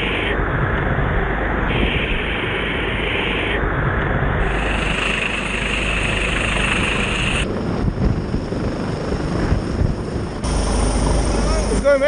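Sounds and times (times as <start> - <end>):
helicopter rotor and engine: 0.0 - 12.0
rotor downwash rush: 0.0 - 12.0
high hiss: 4.4 - 7.4.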